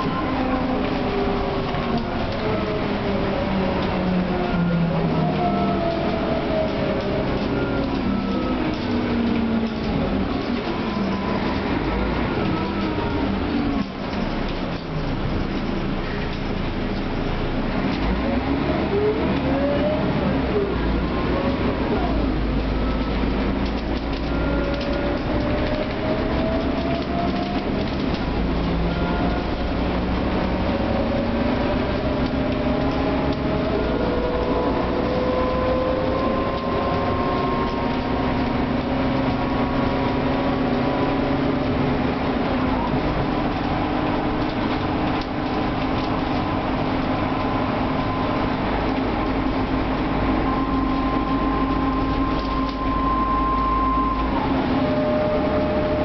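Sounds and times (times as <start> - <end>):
bus diesel engine: 0.0 - 56.0
gearbox whine: 21.9 - 56.0.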